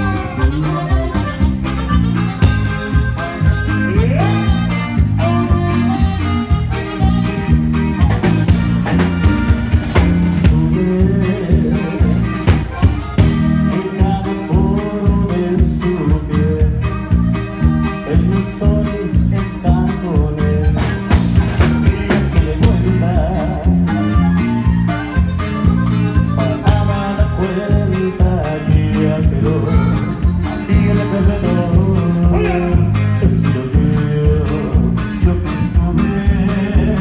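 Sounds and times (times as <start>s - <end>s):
saxophone: 0.0s - 10.4s
accordion: 0.0s - 37.0s
bajo sexto guitar: 0.0s - 37.0s
drum kit: 0.0s - 37.0s
electric bass: 0.0s - 37.0s.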